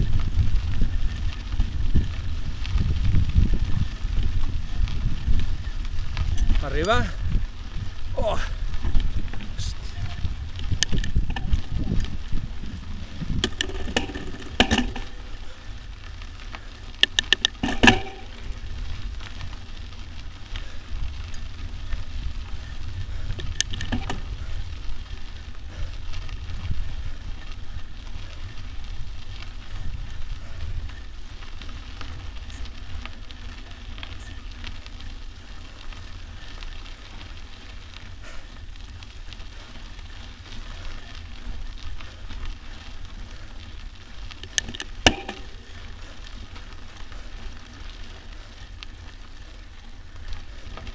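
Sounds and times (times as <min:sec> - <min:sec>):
bike rattling: 0:00.0 - 0:50.9
tyres crackling over gravel: 0:00.0 - 0:50.9
wind rumble on microphone: 0:00.0 - 0:50.9
bike knocking over bumps: 0:10.7 - 0:15.5, 0:16.9 - 0:18.9, 0:23.4 - 0:24.5, 0:44.3 - 0:46.6.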